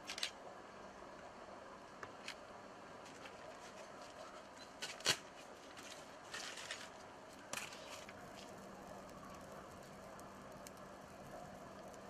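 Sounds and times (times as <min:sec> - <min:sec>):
faint steady background: 0:00.0 - 0:12.0
kindling snapping and rustling: 0:04.8 - 0:06.9.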